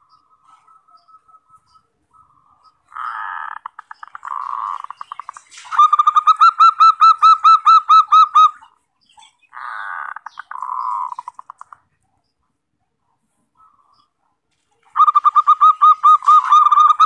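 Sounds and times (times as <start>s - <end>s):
dove cooing: 14.8s - 17.0s.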